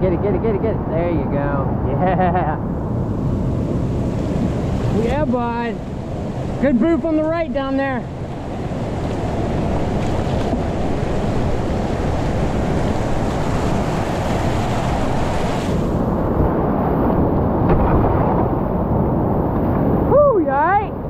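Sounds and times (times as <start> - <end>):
whitewater rapids rushing: 9.1 - 16.0.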